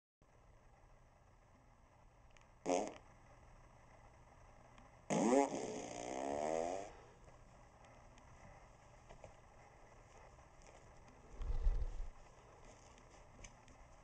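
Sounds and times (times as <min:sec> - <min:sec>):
recorded fart sounds: 0:02.6 - 0:03.1, 0:05.1 - 0:07.0.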